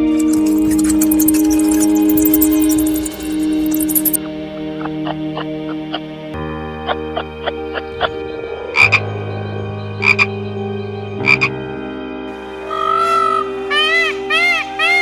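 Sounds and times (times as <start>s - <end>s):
frog croaking: 0.0s - 4.2s, 10.0s - 10.3s, 11.2s - 11.5s.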